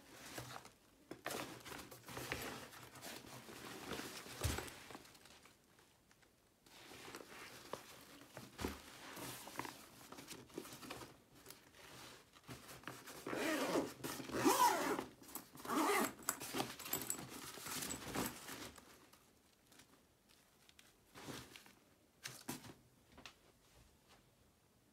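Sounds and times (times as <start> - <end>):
zipper being pulled shut: 13.3 - 16.2.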